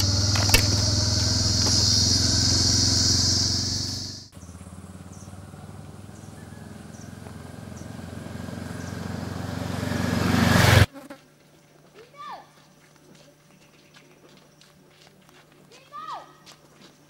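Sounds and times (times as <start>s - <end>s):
motorcycle engine approaching: 0.0s - 10.9s.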